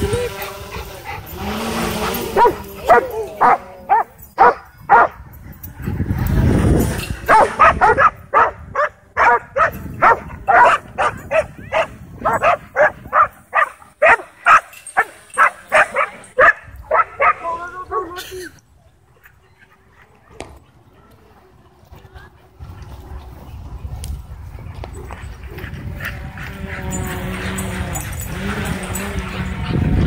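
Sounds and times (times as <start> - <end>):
dogs barking excitedly: 0.0 - 5.7, 7.2 - 18.1, 25.1 - 30.0.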